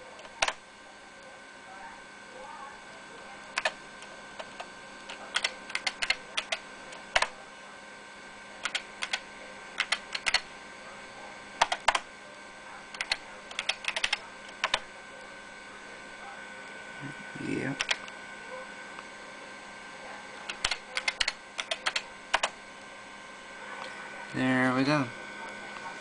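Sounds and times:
keyboard typing: 0.2 - 0.6, 3.5 - 3.8, 4.4 - 7.4, 8.6 - 9.2, 9.8 - 10.5, 11.6 - 12.1, 12.9 - 14.9, 17.8 - 18.0, 20.4 - 22.6.

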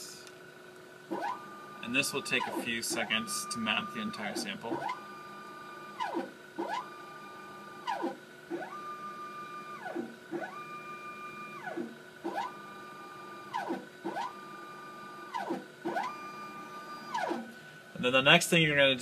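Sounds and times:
faint instrument hum: 0.0 - 19.0
motorised stage motor whine: 0.0 - 19.0.

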